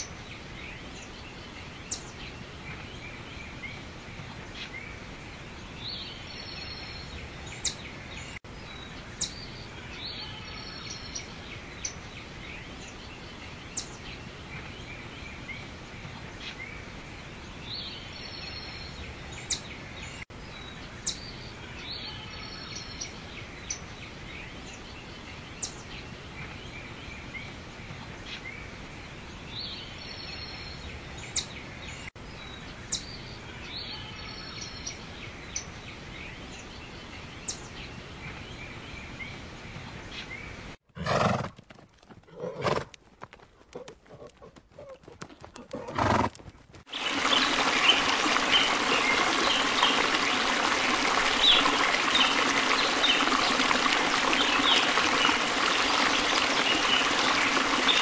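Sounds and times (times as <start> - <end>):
small birds chirping: 43.7 - 58.0.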